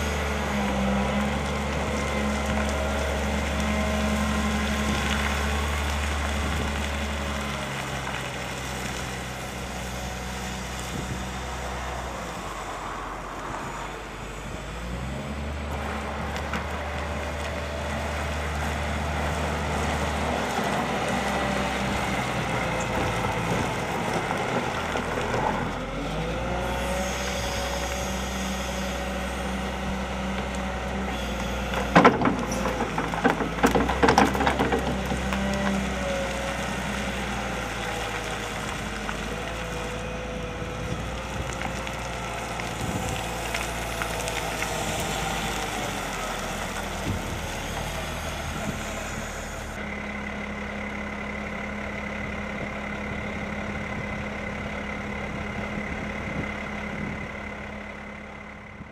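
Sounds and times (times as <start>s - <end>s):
diesel engine of wheel loader: 0.0s - 58.9s.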